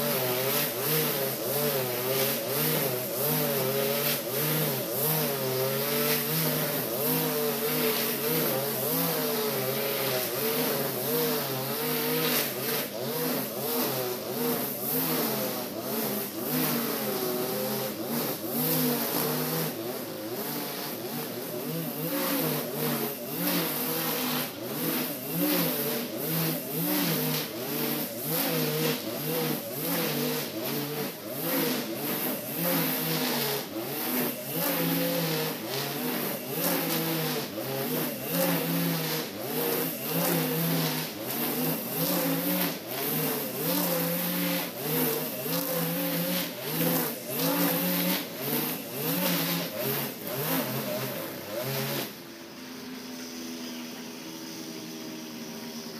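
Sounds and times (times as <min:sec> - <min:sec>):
brush cutter engine: 0:00.0 - 0:55.9
nylon line cutting grass: 0:00.0 - 0:55.9.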